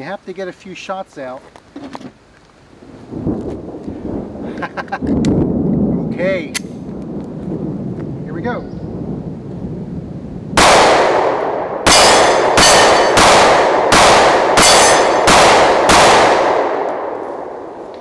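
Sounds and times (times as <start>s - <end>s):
pistol shots with echo: 10.6s - 17.7s
steel targets ringing: 11.9s - 13.3s, 14.6s - 15.3s.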